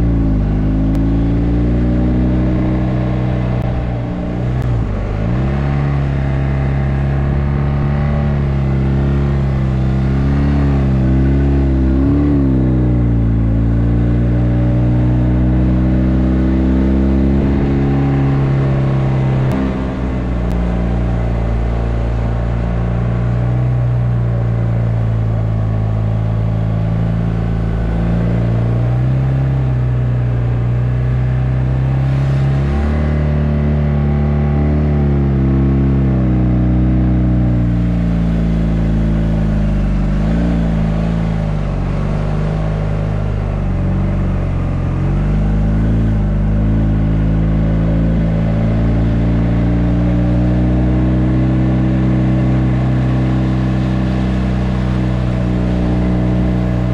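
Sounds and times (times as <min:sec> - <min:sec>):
motorcycle engine running under load: 0:33.0 - 0:56.9.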